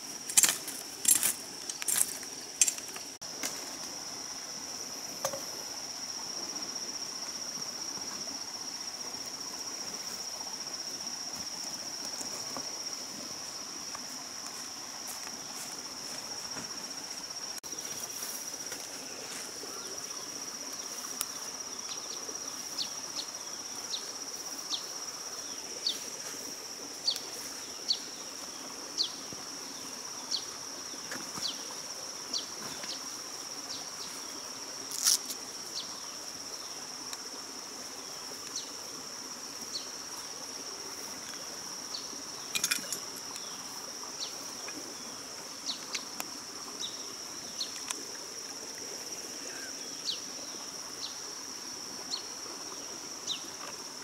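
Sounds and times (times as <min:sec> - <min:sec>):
insects droning: 0:00.0 - 0:54.0.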